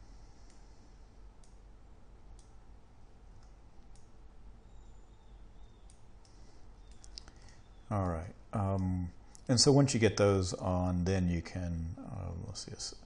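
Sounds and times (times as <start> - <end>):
faint low hum: 0.0 - 13.0
computer mouse clicks: 0.4 - 0.7, 1.4 - 2.6, 3.3 - 9.6.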